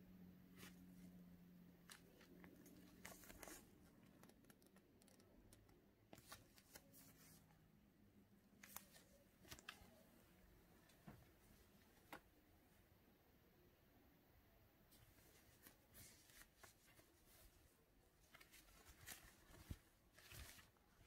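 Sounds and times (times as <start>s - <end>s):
faint low hum: 0.0s - 21.0s
fabric and paper rustling: 0.5s - 7.6s, 8.5s - 10.2s, 14.9s - 21.0s.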